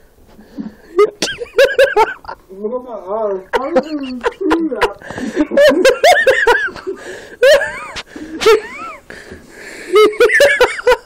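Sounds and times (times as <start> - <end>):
people laughing: 3.5 - 9.0, 9.9 - 11.0.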